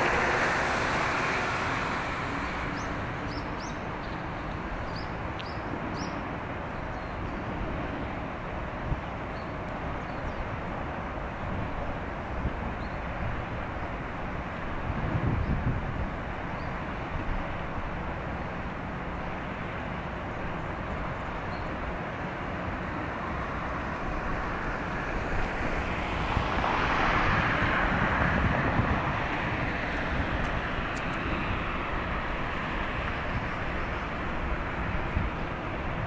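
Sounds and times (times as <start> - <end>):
vehicle passing: 0.0 - 4.4
outdoor background rumble and hiss: 0.0 - 36.0.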